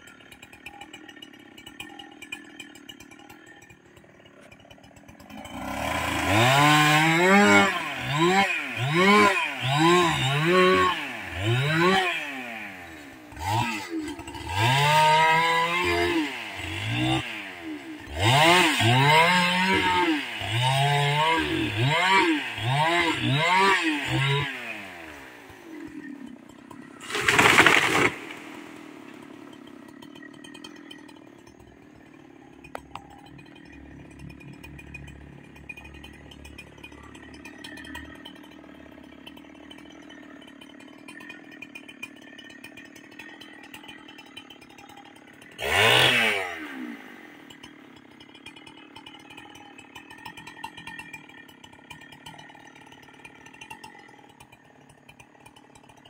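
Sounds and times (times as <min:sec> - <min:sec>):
chainsaw revving and idling: 0:00.0 - 0:56.0
tree crashing down: 0:27.0 - 0:29.3.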